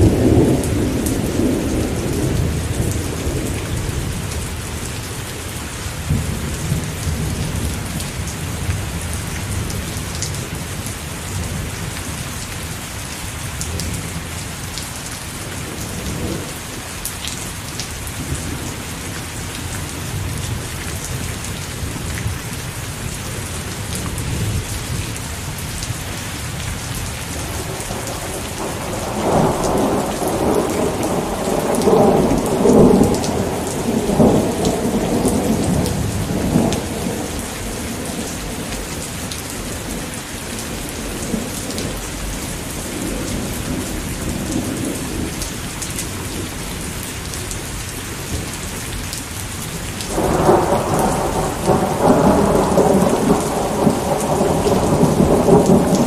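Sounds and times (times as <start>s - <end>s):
thunder rumbling: 0.0s - 5.1s, 23.0s - 45.5s, 50.0s - 56.0s
heavy rain: 0.0s - 56.0s.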